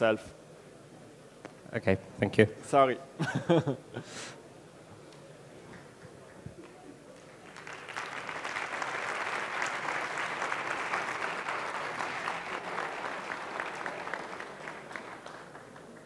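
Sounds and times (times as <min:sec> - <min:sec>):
audience applauding: 0:06.6 - 0:16.0.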